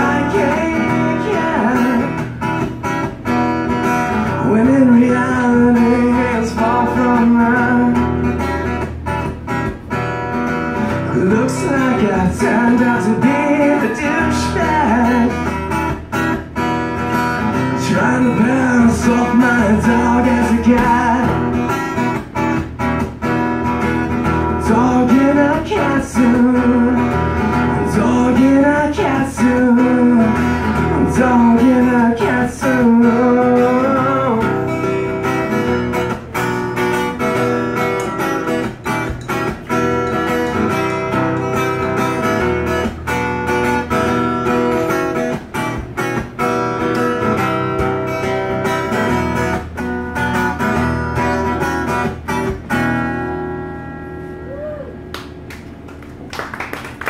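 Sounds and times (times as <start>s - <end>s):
man singing: 0.0s - 2.4s, 4.3s - 8.3s, 11.1s - 15.6s, 17.7s - 21.6s, 24.5s - 36.2s
acoustic guitar strumming: 0.0s - 56.2s.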